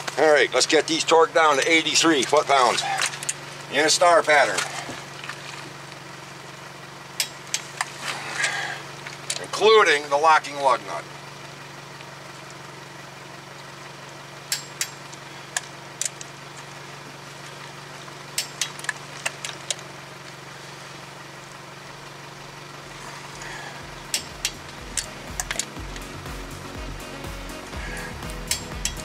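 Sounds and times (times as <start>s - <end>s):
steady low hum: 0.0s - 29.0s
torque wrench clicking: 7.2s - 7.9s, 14.5s - 16.3s, 18.4s - 19.8s, 28.5s - 29.0s.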